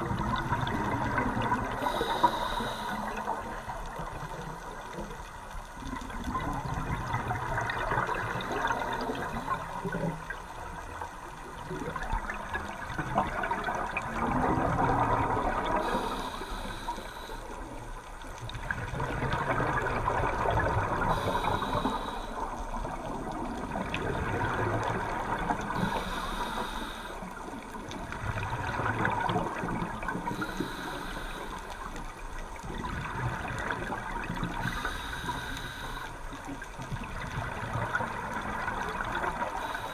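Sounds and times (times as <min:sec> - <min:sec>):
exhaled bubbles rushing: 0:00.0 - 0:01.8, 0:06.0 - 0:10.4, 0:11.6 - 0:16.1, 0:18.5 - 0:21.6, 0:22.5 - 0:25.8, 0:28.0 - 0:30.4
regulator inhalation hiss: 0:01.7 - 0:03.4, 0:15.8 - 0:17.7, 0:21.1 - 0:22.6, 0:25.8 - 0:27.4, 0:30.3 - 0:31.8, 0:34.6 - 0:36.3.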